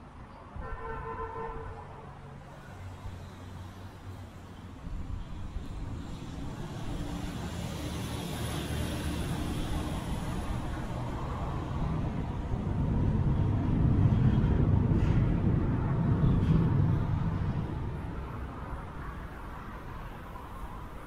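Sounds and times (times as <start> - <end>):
road traffic rumble: 0.0 - 21.0.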